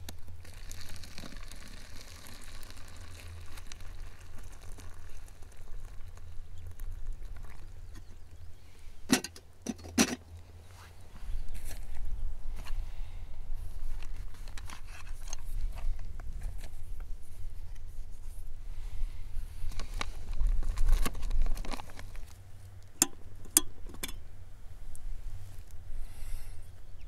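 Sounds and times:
camping gear clicks and crinkles: 0:00.0 - 0:08.4, 0:13.9 - 0:17.1, 0:19.6 - 0:24.2
low steady rumble: 0:00.0 - 0:27.0.

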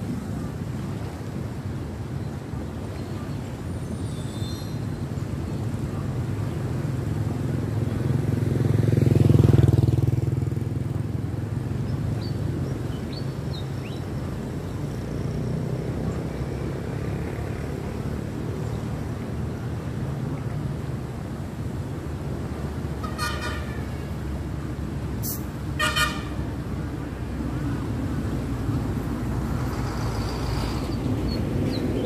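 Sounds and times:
moving water: 0:00.0 - 0:32.0
motorbike passing: 0:07.0 - 0:12.7, 0:14.8 - 0:19.9.

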